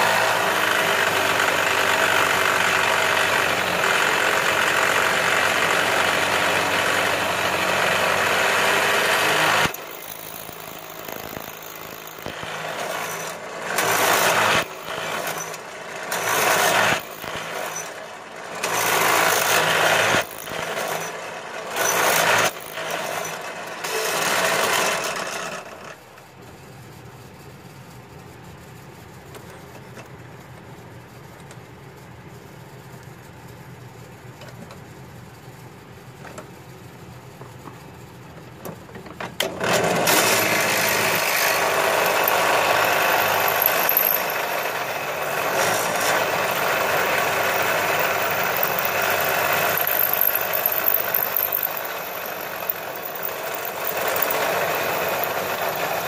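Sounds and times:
drill press boring into metal: 0:00.1 - 0:25.6, 0:39.4 - 0:56.0.

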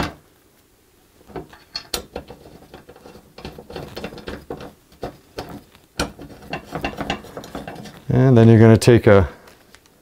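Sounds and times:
screws and metal bracket clinking: 0:01.3 - 0:04.7.

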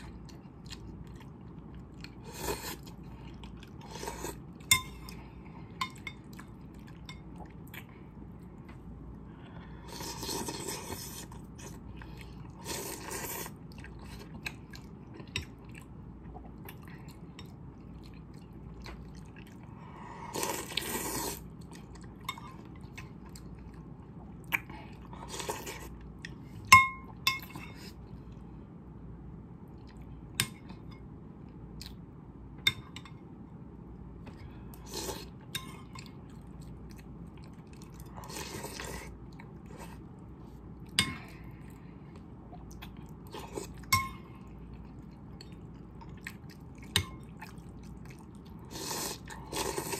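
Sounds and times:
chewing: 0:34.8 - 0:40.1, 0:41.6 - 0:49.9.

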